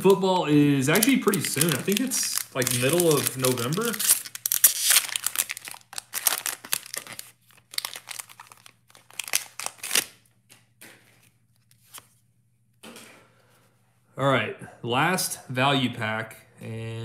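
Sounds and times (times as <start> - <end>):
foil wrapper tearing and crinkling: 0.9 - 10.2.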